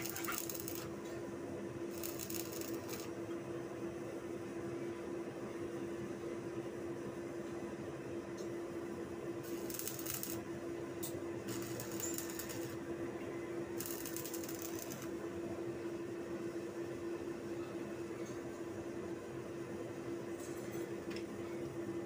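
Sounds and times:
arc welding crackle: 0:00.0 - 0:01.0, 0:01.9 - 0:03.2, 0:09.4 - 0:10.5, 0:11.5 - 0:12.8, 0:13.8 - 0:15.2
steady hum: 0:00.0 - 0:04.3.

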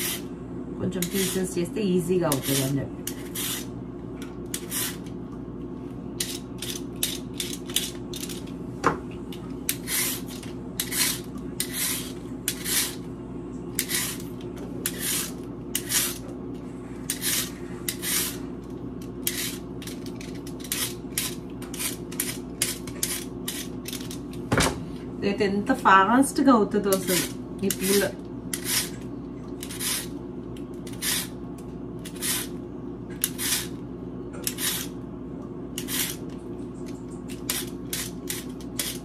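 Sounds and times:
peeler scraping carrots: 0:00.0 - 0:00.3, 0:00.9 - 0:01.6, 0:02.3 - 0:03.7, 0:04.5 - 0:05.1, 0:09.7 - 0:13.0, 0:13.8 - 0:16.3, 0:17.1 - 0:18.4, 0:19.2 - 0:24.2, 0:26.9 - 0:29.0, 0:29.6 - 0:30.2, 0:30.8 - 0:31.4, 0:32.0 - 0:32.6, 0:33.2 - 0:33.8, 0:34.4 - 0:34.9, 0:35.8 - 0:36.3, 0:37.3 - 0:39.0
steady low hum: 0:00.0 - 0:39.0.

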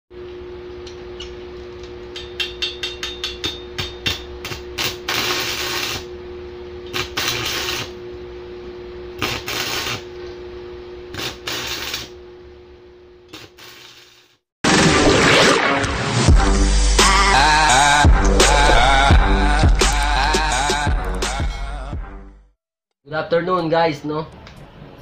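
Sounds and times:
steady hum: 0:00.2 - 0:13.2, 0:16.3 - 0:21.8
welding arc crackling and sizzling: 0:04.0 - 0:06.1, 0:06.9 - 0:08.0, 0:09.1 - 0:10.2, 0:11.1 - 0:12.2, 0:13.3 - 0:14.4.

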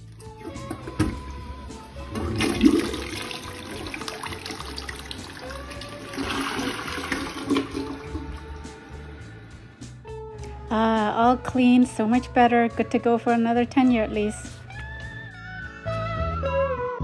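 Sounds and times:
toilet flushing: 0:00.0 - 0:09.1.

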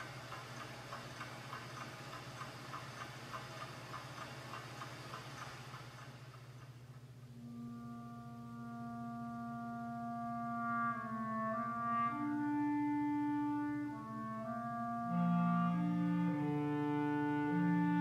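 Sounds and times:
clarinets playing held notes: 0:07.2 - 0:18.0.

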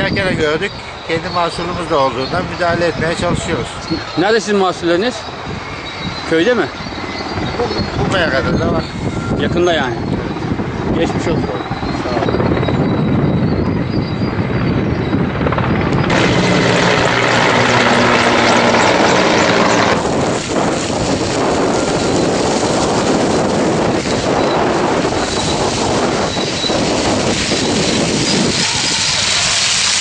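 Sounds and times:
strong wind: 0:00.0 - 0:30.0
helicopter droning: 0:00.2 - 0:30.0
burning vegetation crackling: 0:14.5 - 0:30.0.

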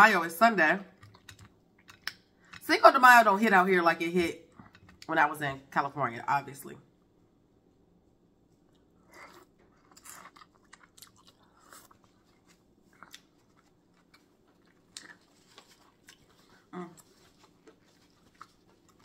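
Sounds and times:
chewing corn on the cob: 0:08.7 - 0:19.0.

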